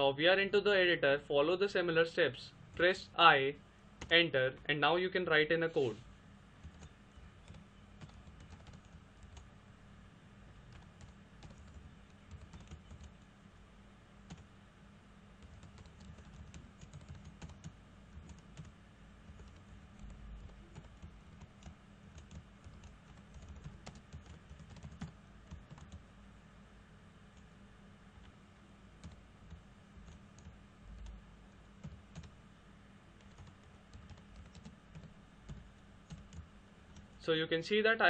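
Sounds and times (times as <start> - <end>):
low steady hum: 0.0 - 38.0
faint keyboard typing: 4.0 - 4.2, 6.6 - 9.6, 10.4 - 13.3, 14.2 - 14.5, 15.4 - 26.1, 28.2 - 32.4, 33.2 - 37.2.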